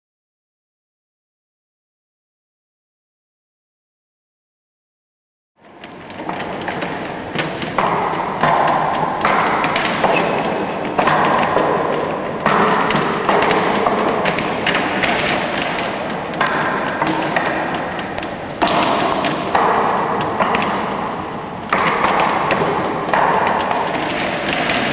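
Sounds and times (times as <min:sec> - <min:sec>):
arms striking wooden dummy: 0:05.8 - 0:24.9.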